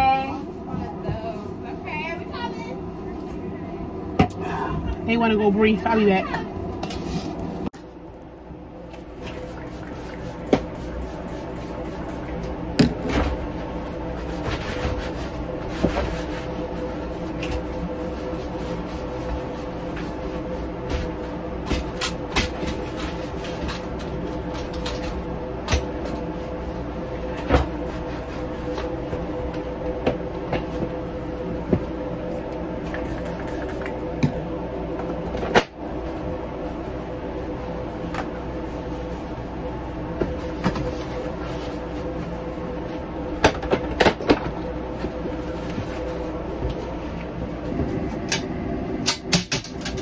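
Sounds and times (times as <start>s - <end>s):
aircraft cabin air system hum: 0.0s - 50.0s
wiping and rubbing: 14.0s - 20.7s.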